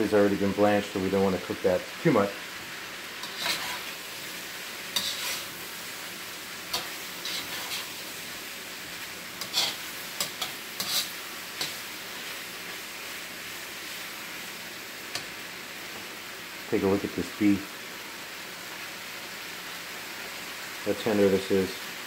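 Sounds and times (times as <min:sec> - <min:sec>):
food sizzling in wok: 0:00.0 - 0:22.0
metal spatula scraping pan: 0:03.2 - 0:04.2, 0:04.9 - 0:05.6, 0:06.7 - 0:08.0, 0:09.4 - 0:12.2.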